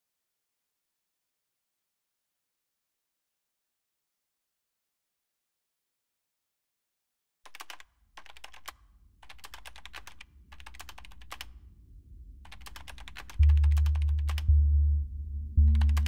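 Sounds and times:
computer keyboard typing: 7.5s - 11.5s, 12.5s - 14.5s, 15.6s - 16.0s
faint low drone: 11.6s - 16.0s
deep bass electronic music: 13.4s - 16.0s.

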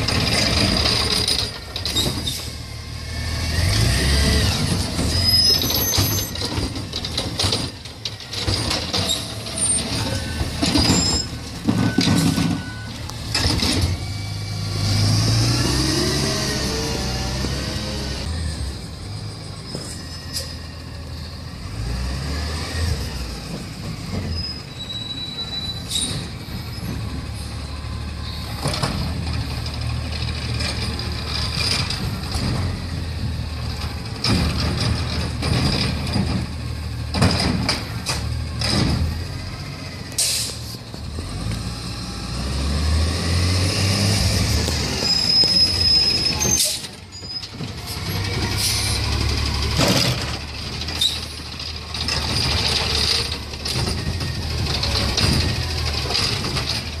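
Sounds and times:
high brake squeals: 1.2s - 2.6s, 5.1s - 6.5s, 9.0s - 13.2s, 19.1s - 21.0s, 24.1s - 28.7s, 40.1s - 40.8s, 44.7s - 49.1s, 51.0s - 51.4s
air brakes hissing: 40.2s - 40.8s, 47.9s - 49.0s.

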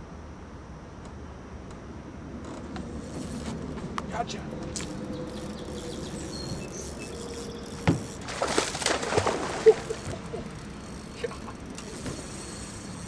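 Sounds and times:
fish splashing in water: 8.2s - 10.5s.

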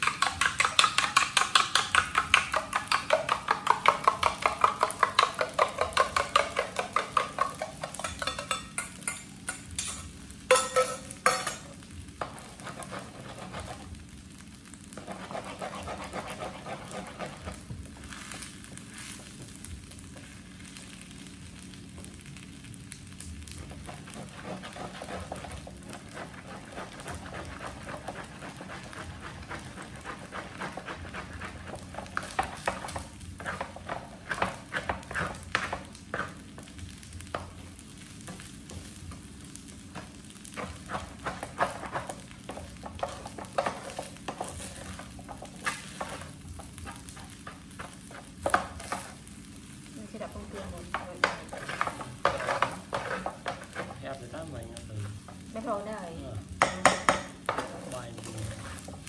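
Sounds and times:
rice sizzling in a frying pan: 0.0s - 59.0s
plastic spatula scraping a pan: 12.2s - 13.9s, 14.9s - 19.2s, 23.6s - 36.7s, 40.0s - 49.2s, 50.2s - 54.3s, 57.4s - 59.0s.

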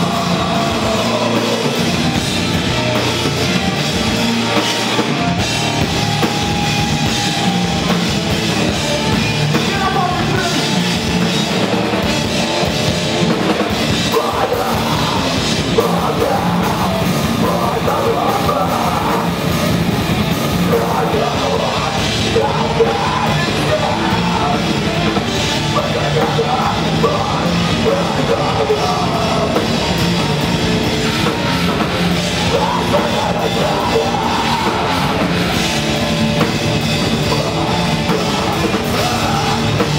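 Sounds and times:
person singing into a microphone: 0.0s - 2.0s, 14.0s - 19.4s, 20.6s - 29.9s, 32.3s - 35.6s, 37.1s - 39.9s
live rock band playing: 0.0s - 39.9s.

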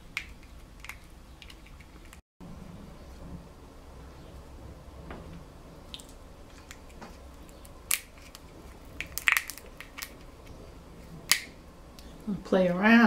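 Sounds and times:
crab shell cracking: 5.9s - 10.5s, 11.2s - 11.6s.

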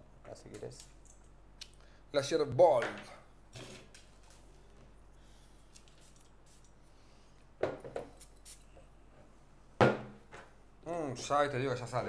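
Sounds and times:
perfume atomiser spraying: 5.7s - 6.7s.

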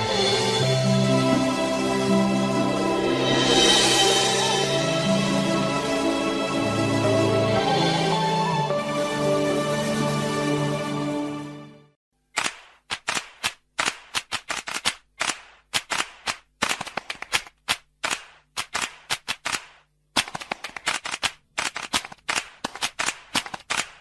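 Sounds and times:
music: 0.0s - 12.0s
sharp rhythmic claps: 12.4s - 24.0s.

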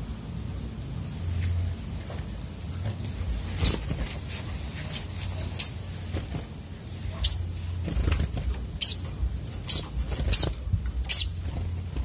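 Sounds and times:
wing flutter: 2.1s - 12.0s
sharp high-pitched bird chirps: 3.6s - 3.9s, 5.6s - 5.8s, 7.2s - 7.6s, 8.8s - 11.5s.

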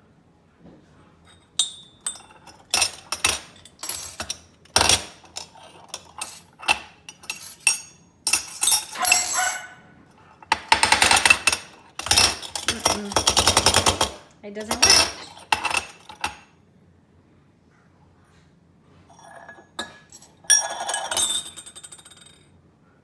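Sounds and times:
metal pot parts clinking on stone: 1.3s - 9.7s, 10.7s - 16.4s, 19.1s - 22.5s.

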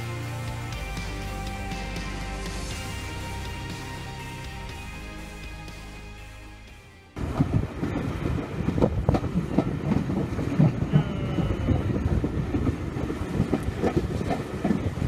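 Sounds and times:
train wheels rumbling on rails: 7.2s - 11.6s.

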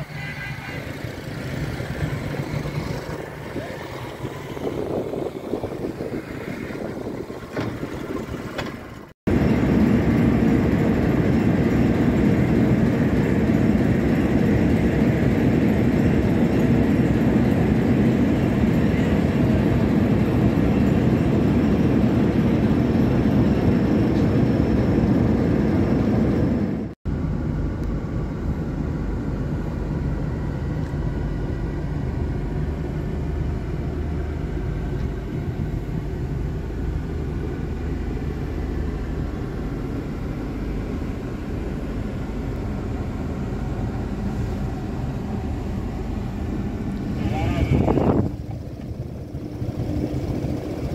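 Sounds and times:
engine hum inside car cabin: 0.0s - 50.9s
vehicle engine noise: 0.0s - 50.9s.

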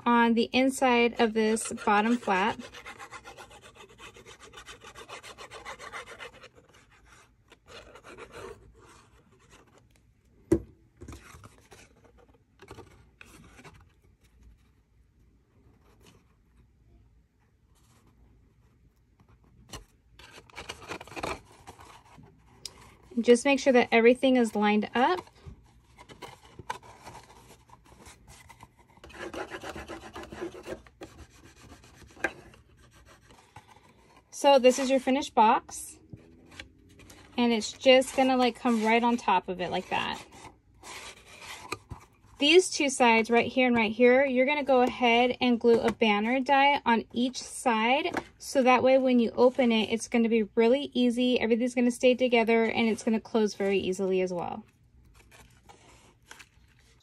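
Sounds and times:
cardstock handling: 24.9s - 34.2s
fingers rubbing on cardstock: 29.0s - 32.2s.

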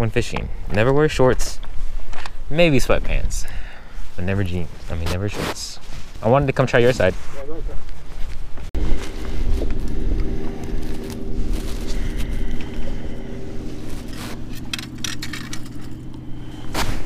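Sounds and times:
distant engine hum: 8.8s - 17.0s.

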